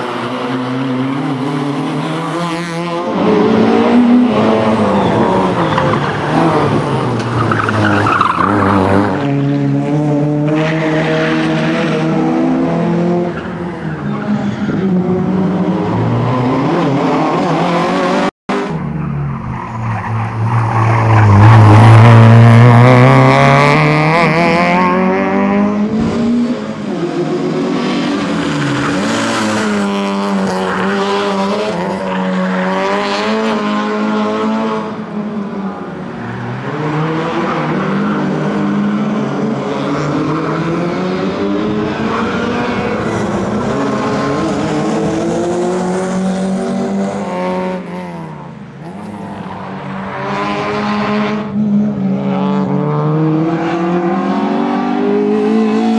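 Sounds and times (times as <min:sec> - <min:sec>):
rally car engine revving: 0:00.0 - 0:55.9.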